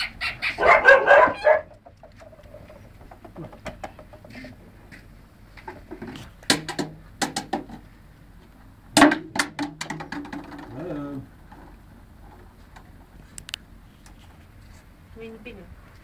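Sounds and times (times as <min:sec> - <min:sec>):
puppies yapping and squealing: 0:00.0 - 0:02.9.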